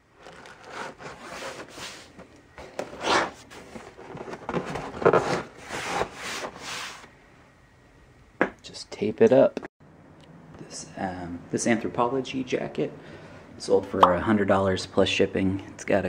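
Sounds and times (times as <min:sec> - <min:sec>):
cardboard rubbing and scraping: 0:00.2 - 0:02.2, 0:02.8 - 0:07.0.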